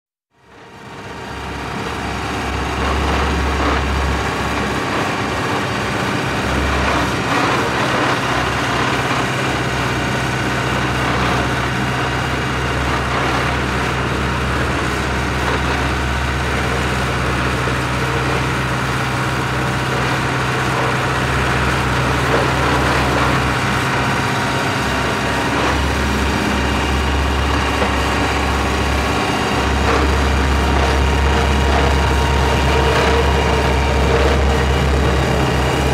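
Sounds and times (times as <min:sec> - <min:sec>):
roller compactor engine droning: 0:00.3 - 0:35.9
deep low hum: 0:21.4 - 0:35.9.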